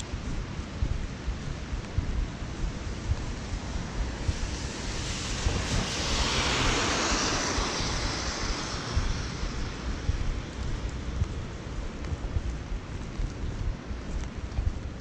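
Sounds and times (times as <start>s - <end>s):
steady rain: 0.0s - 14.2s
wind rumble on microphone: 0.0s - 15.0s
vehicle tyre hiss on wet road: 3.4s - 11.1s.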